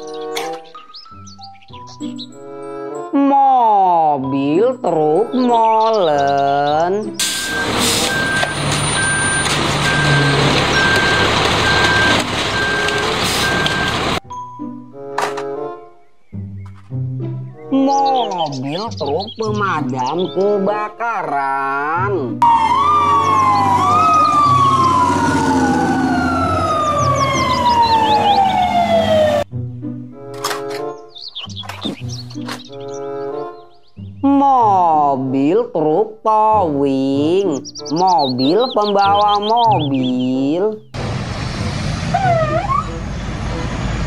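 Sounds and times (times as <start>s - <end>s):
concrete mixer truck rumbling: 7.2s - 14.2s, 22.4s - 29.2s, 41.0s - 44.0s
reversing alarm beeping: 7.2s - 14.2s, 22.4s - 29.3s.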